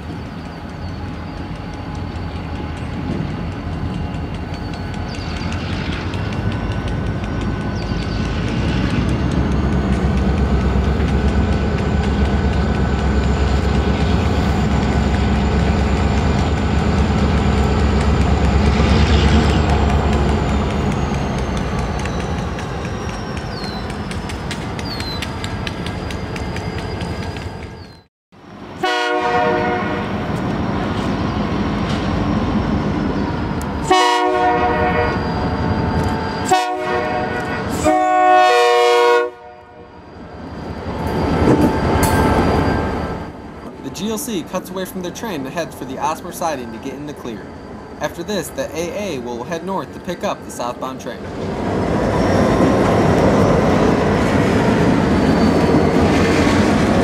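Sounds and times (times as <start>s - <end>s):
diesel locomotives rumbling past: 0.0s - 57.0s
locomotive horn blasts: 28.8s - 30.2s, 33.8s - 35.2s, 36.4s - 39.9s.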